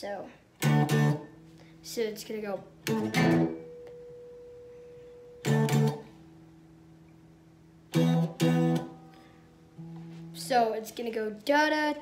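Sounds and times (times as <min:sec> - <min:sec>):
clean electric guitar chords: 0:00.6 - 0:01.8, 0:02.7 - 0:10.5.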